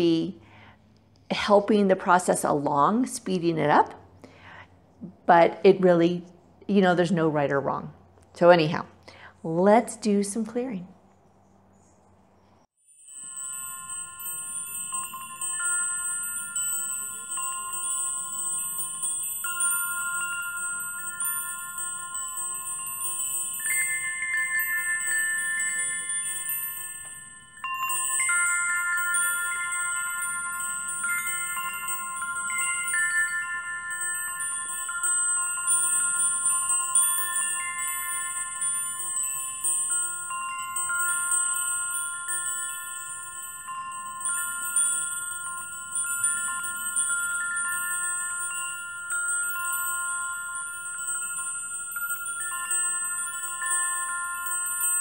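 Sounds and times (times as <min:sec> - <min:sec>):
chimes ringing: 0:12.9 - 0:55.0.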